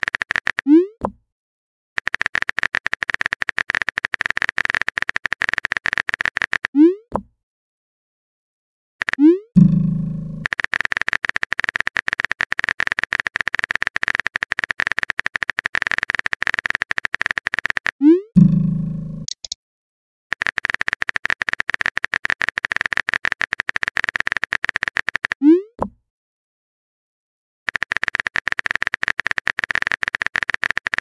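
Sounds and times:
phone keyboard typing clicks: 0.0s - 1.2s, 2.0s - 7.2s, 9.0s - 9.3s, 10.4s - 18.0s, 19.2s - 19.6s, 20.3s - 25.4s, 27.7s - 31.0s.

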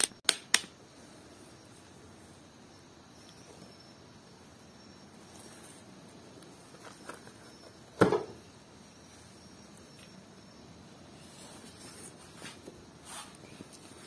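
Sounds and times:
object knocked on workbench: 8.0s - 8.4s.

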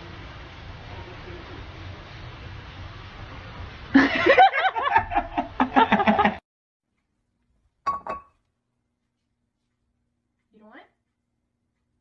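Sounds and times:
people laughing loudly: 4.0s - 6.4s.

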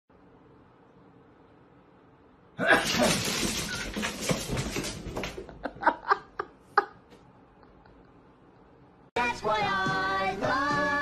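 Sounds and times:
cats scrambling on wooden floor: 2.8s - 5.8s.

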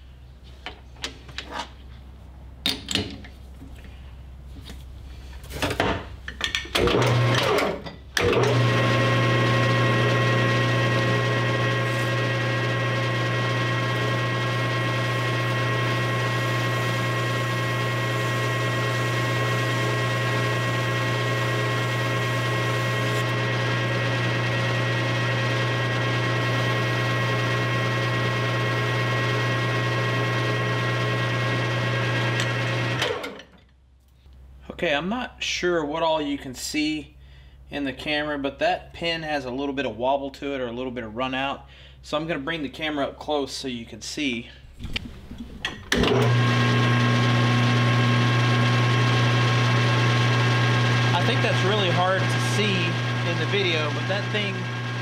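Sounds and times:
lathe running with steady hum: 8.2s - 33.3s, 46.0s - 55.0s.

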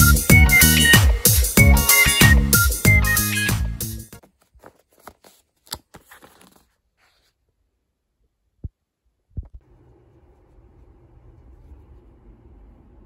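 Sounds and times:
paper envelope rustling: 4.2s - 7.4s.

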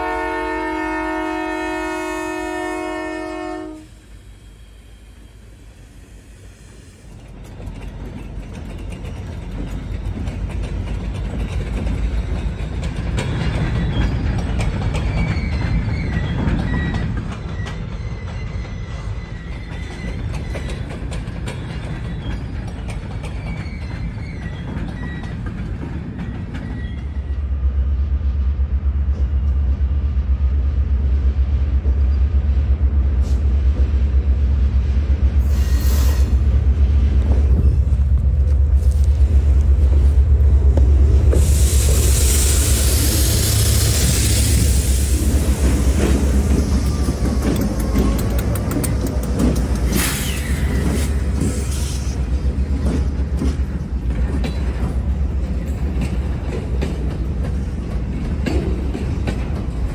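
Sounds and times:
freight train rolling: 0.0s - 59.9s
wheel squeals: 12.6s - 27.4s, 46.0s - 52.2s.

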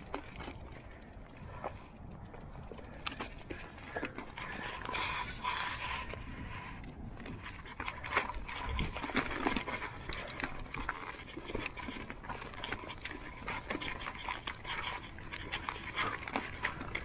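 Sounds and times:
bike rattling: 0.0s - 17.0s
tyres crunching on gravel: 0.0s - 17.0s.

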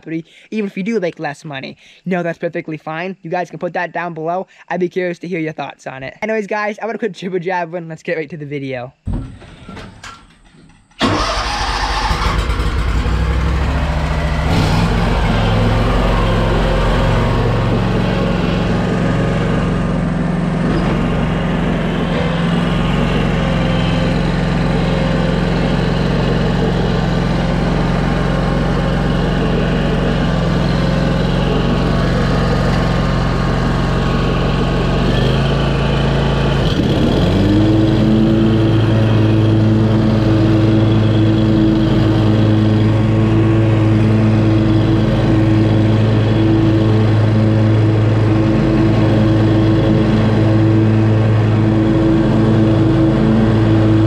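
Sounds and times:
mower engine running: 9.2s - 54.0s.

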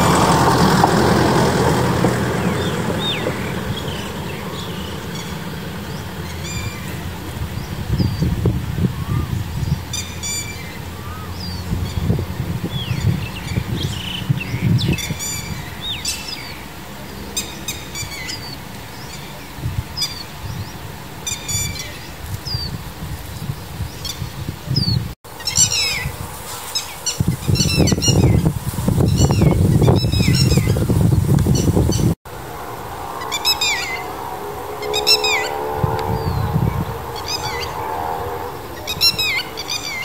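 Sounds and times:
lapwing calling: 0.0s - 22.7s, 26.7s - 30.9s, 31.5s - 40.0s
bird chirps and calls: 1.6s - 26.1s, 26.7s - 32.2s, 33.2s - 34.2s, 34.8s - 40.0s
low rumble: 29.6s - 39.9s.

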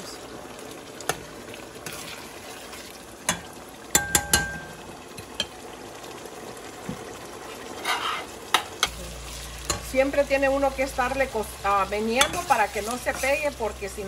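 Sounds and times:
sauce sizzling in a pot: 0.0s - 14.0s
spoon clinking against pot: 3.3s - 4.7s
spoon scraping pot: 7.8s - 9.0s.

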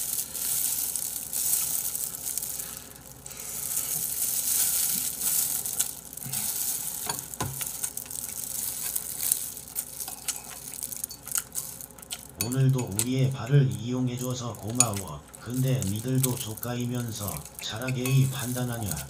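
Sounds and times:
wet crackly chewing and smacking: 5.7s - 19.0s.

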